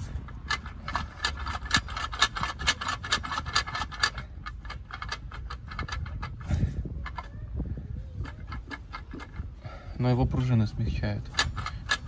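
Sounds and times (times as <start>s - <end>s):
rapid clicks with rubbing: 0.0s - 7.3s, 8.2s - 9.6s, 11.2s - 12.0s.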